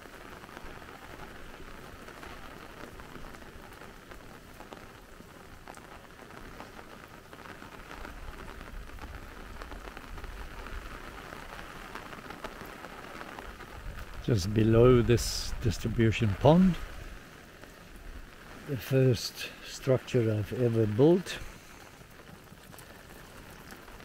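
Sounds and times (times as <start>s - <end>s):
rain falling: 0.0s - 24.0s.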